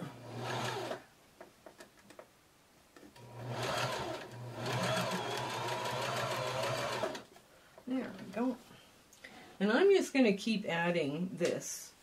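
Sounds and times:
electric sewing machine stitching: 0:00.0 - 0:01.0, 0:03.2 - 0:07.2.

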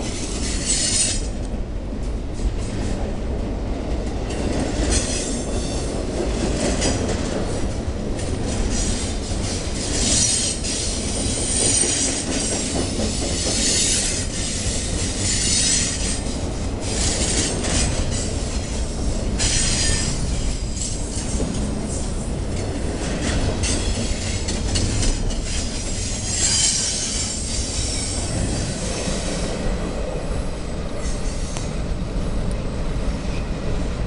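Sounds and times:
steel wheels rumbling on rail: 0:00.0 - 0:34.0
wheel squeal: 0:25.1 - 0:29.4.

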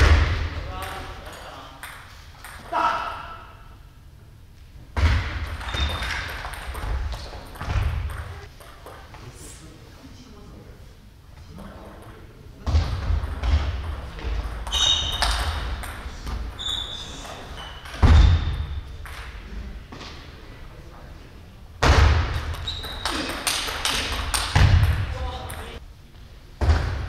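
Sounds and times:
loud shouts: 0:02.7 - 0:03.6
shoes squeaking on wooden floor: 0:14.7 - 0:15.4, 0:16.6 - 0:18.4.

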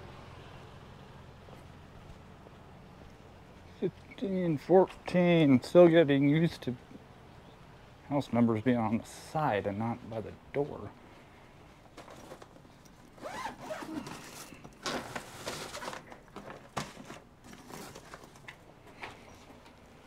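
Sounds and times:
zipper rasping: 0:13.2 - 0:14.6.

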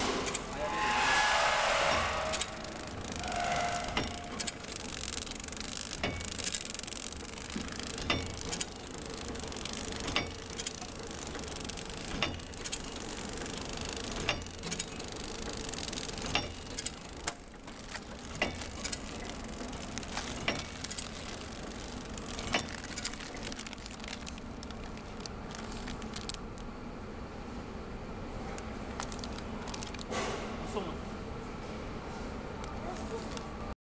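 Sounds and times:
packing machine humming: 0:00.0 - 0:27.4, 0:28.3 - 0:30.9
machine clicks and ticks: 0:01.9 - 0:26.7.

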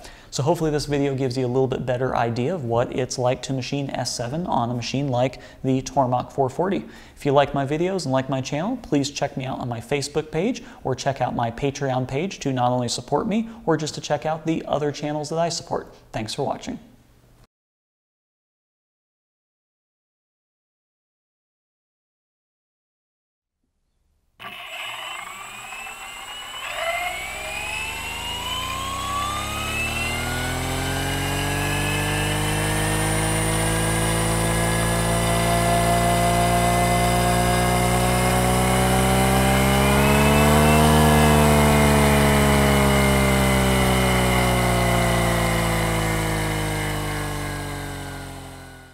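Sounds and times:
spinning weapon whine: 0:24.4 - 0:35.4.

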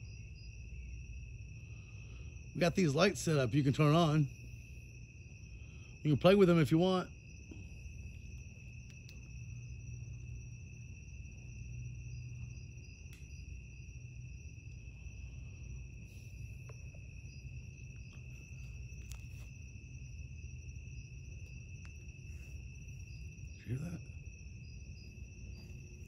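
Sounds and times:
crickets trilling: 0:00.0 - 0:26.0
faint ticks: 0:08.1 - 0:09.6.

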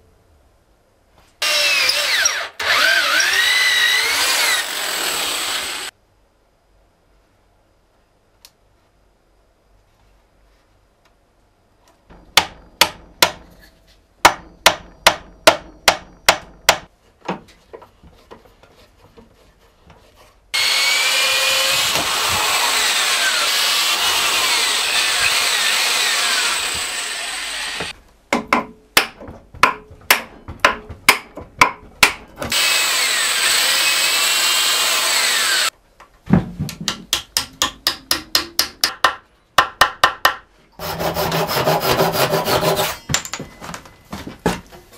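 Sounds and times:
electric drill boring wood: 0:01.4 - 0:05.9, 0:20.6 - 0:27.9, 0:32.5 - 0:35.7
wooden mallet knocking pegs: 0:12.1 - 0:13.5, 0:14.2 - 0:17.4, 0:28.3 - 0:32.5, 0:36.7 - 0:40.5.

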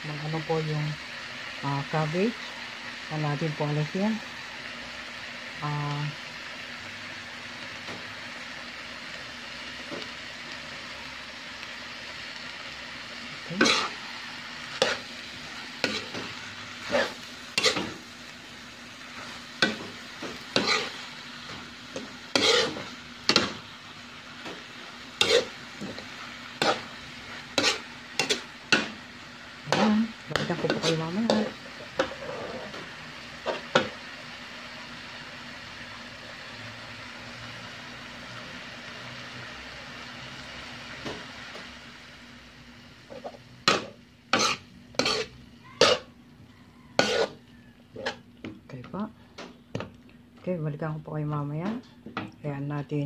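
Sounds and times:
cabbage sizzling in a wok: 0:00.0 - 0:53.0
metal spatula scraping a pan: 0:13.5 - 0:18.1, 0:19.1 - 0:21.2, 0:21.9 - 0:23.6, 0:25.2 - 0:29.0, 0:29.7 - 0:32.8, 0:43.1 - 0:46.1, 0:46.9 - 0:47.4, 0:48.0 - 0:48.2.

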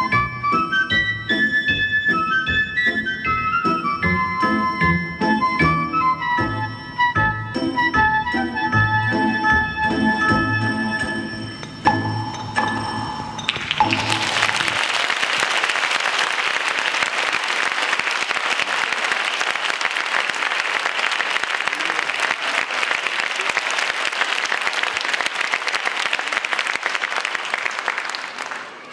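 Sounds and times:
music: 0:00.0 - 0:14.9
audience applauding: 0:13.4 - 0:28.9.

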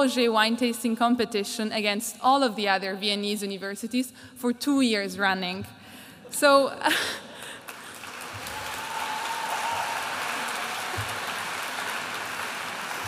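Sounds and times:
audience applauding: 0:07.6 - 0:13.0.

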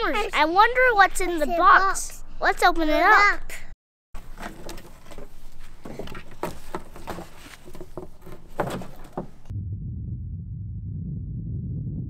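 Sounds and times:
rope and cardboard box rustling: 0:04.2 - 0:09.5
steady low rumble: 0:09.5 - 0:12.0.

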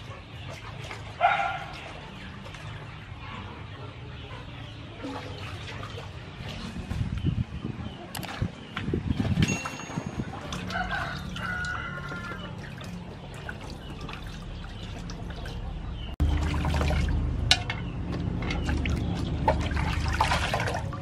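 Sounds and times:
water splashing and trickling: 0:00.0 - 0:03.7, 0:04.7 - 0:21.0.

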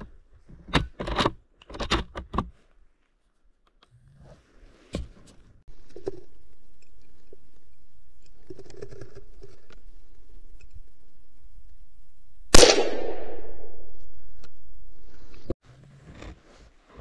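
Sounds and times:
rifle shot with echo: 0:12.5 - 0:14.1.

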